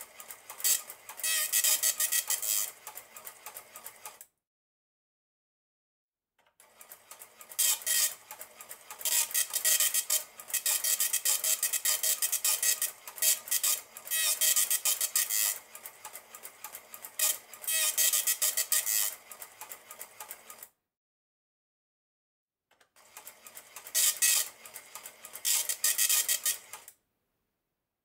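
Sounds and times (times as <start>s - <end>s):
dot matrix printer printing: 0.0s - 4.2s, 6.6s - 20.7s, 23.0s - 27.0s.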